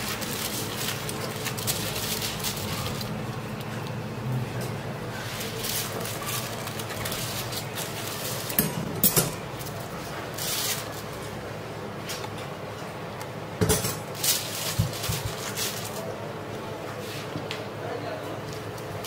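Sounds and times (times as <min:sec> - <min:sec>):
rustling and handling noise: 0:00.0 - 0:12.9, 0:13.8 - 0:17.5.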